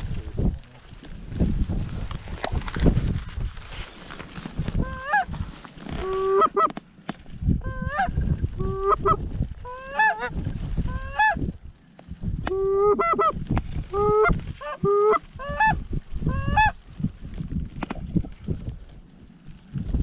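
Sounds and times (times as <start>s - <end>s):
goose honking: 4.8s - 5.3s, 6.0s - 6.7s, 7.7s - 11.4s, 12.5s - 16.8s.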